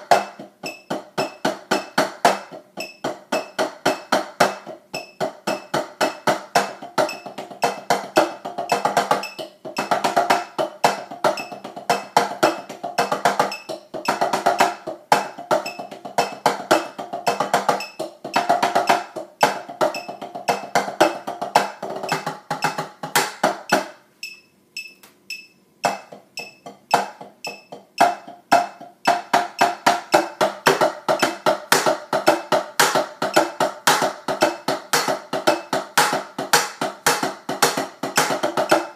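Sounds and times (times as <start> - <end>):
drumsticks tapping practice pad: 0.0 - 38.9.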